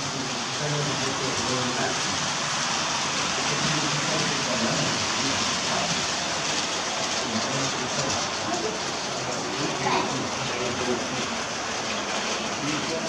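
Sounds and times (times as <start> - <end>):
model train running on track: 0.0 - 13.0
faint scattered voices: 7.0 - 13.0.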